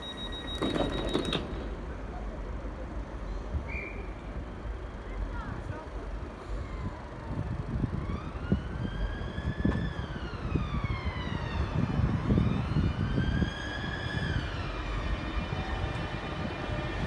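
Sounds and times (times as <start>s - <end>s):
wheels rumbling on track: 0.0s - 17.0s
electric train inverters whining: 7.2s - 17.0s.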